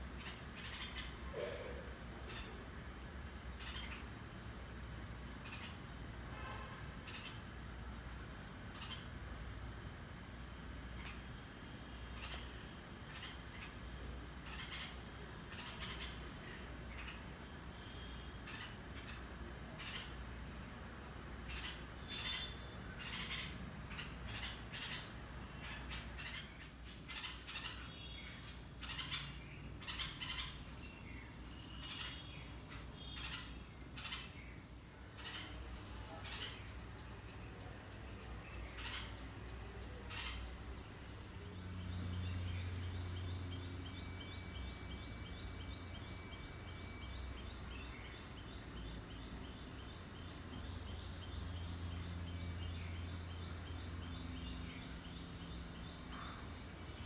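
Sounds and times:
nestlings chirping: 0:21.6 - 0:34.4.

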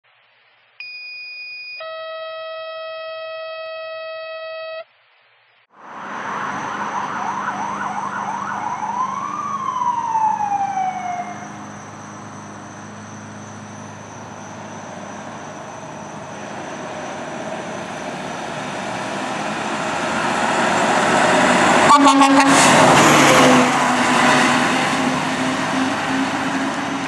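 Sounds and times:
road noise: 0:05.7 - 0:27.0
fire engine siren: 0:05.8 - 0:27.0
low engine drone: 0:05.8 - 0:27.0.

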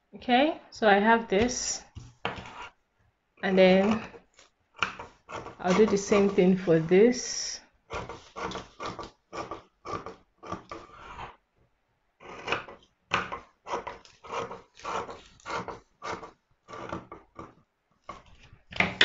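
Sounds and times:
scissors cutting paper: 0:04.8 - 0:06.8, 0:12.3 - 0:17.1.

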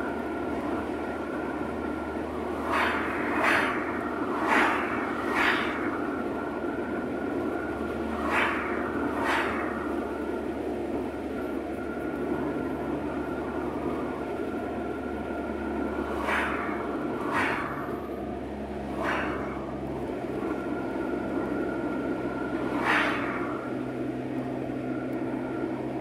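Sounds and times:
cars whooshing past: 0:00.0 - 0:12.2, 0:13.1 - 0:25.7
car road noise and engine hum: 0:00.0 - 0:26.0.

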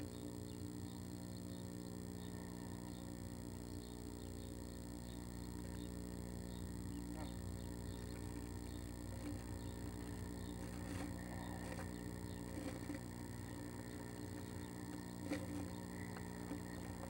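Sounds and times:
low hum: 0:00.0 - 0:17.0
bird scratching on wood shavings: 0:08.0 - 0:17.0.

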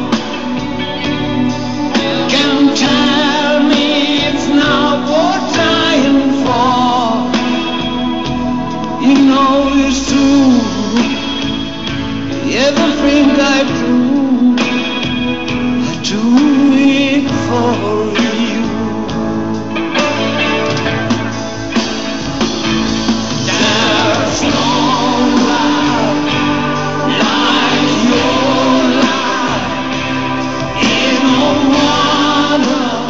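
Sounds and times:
band with guitar: 0:00.0 - 0:33.0
man singing into a microphone: 0:01.9 - 0:07.8, 0:08.9 - 0:11.5, 0:12.4 - 0:15.0, 0:15.7 - 0:19.2, 0:23.5 - 0:30.0, 0:30.7 - 0:33.0.

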